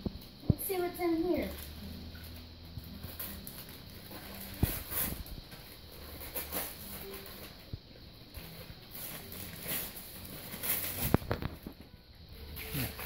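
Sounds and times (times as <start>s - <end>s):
wrapping paper rustling: 3.0s - 7.7s, 8.4s - 11.8s.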